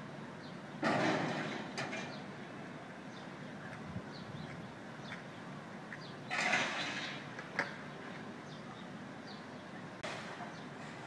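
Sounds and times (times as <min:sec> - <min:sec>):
metal pipes crashing into dumpster: 0:00.8 - 0:02.2, 0:06.3 - 0:07.2.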